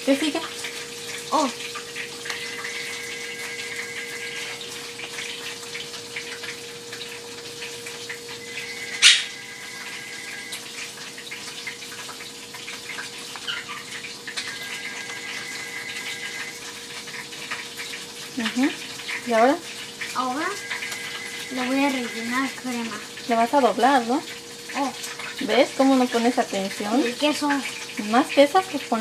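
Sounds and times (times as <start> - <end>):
oil sizzling in a pan: 0.0 - 29.0
steady hum: 0.1 - 11.2, 20.0 - 24.2.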